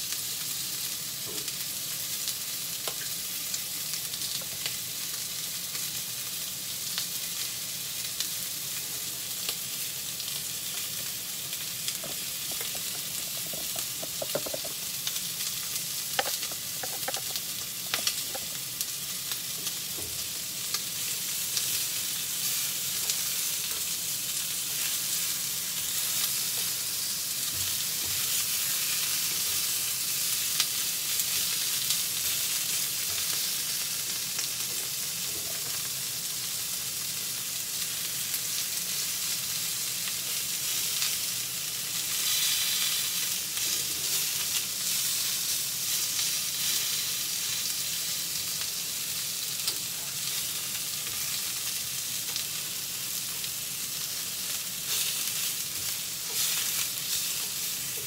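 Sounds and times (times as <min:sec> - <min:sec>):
meat sizzling in a frying pan: 0:00.0 - 0:58.0
chopsticks clicking against pan: 0:16.2 - 0:18.5.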